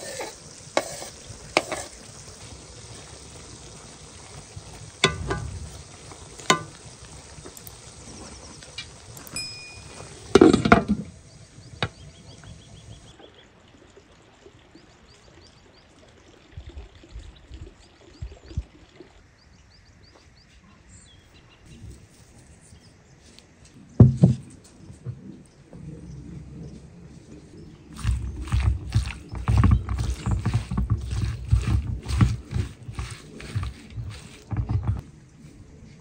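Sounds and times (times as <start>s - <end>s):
knocks and thunks: 24.0s - 24.5s.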